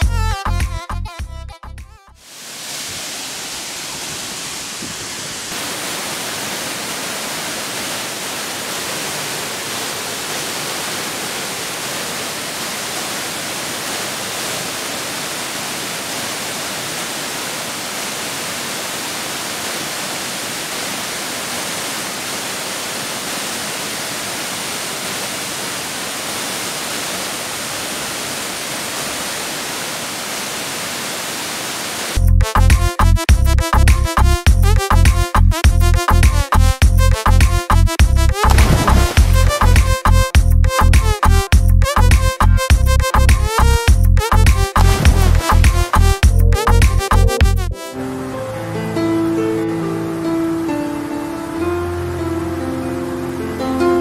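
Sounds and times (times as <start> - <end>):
waterfall splashing onto rock: 2.2 - 32.2, 38.3 - 40.0, 44.8 - 45.9.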